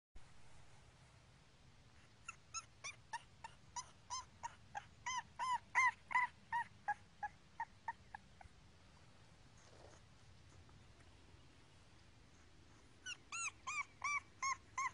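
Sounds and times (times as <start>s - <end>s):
puppy crying in high squeaks: 2.2s - 8.3s, 13.0s - 14.9s.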